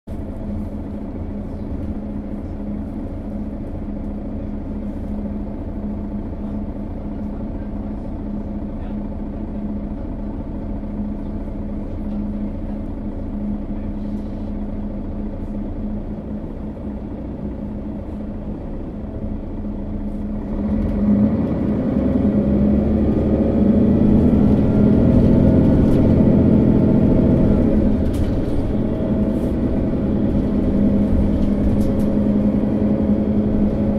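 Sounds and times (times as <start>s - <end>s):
bus diesel engine: 0.1s - 33.9s.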